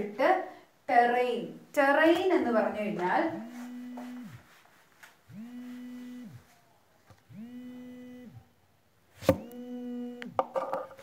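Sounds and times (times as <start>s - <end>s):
smartphone vibrating: 3.3s - 4.5s, 5.3s - 6.5s, 7.3s - 8.5s, 9.2s - 10.8s.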